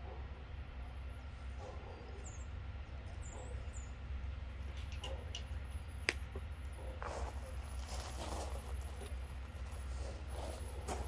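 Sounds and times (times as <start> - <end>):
steady low rumble: 0.0 - 11.0
small rustles: 7.0 - 11.0
soft footsteps: 7.0 - 11.0.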